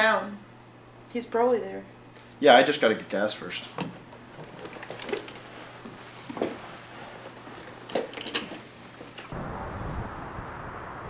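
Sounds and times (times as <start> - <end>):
knocks and rustles: 3.7 - 9.3.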